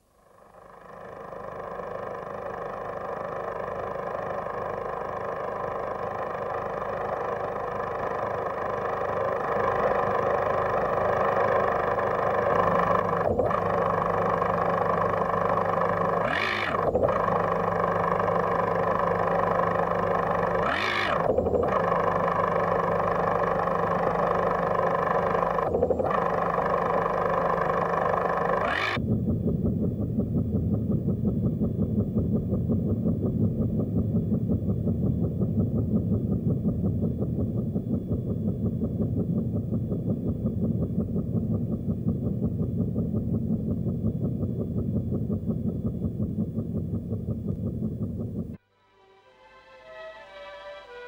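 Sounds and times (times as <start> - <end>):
deep steady tone: 0.0 - 48.6
sustained tonal drone: 21.6 - 51.0.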